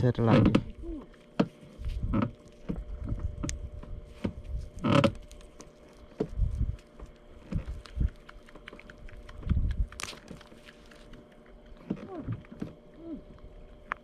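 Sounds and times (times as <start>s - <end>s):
gloved hands handling fish: 0.7s - 11.8s.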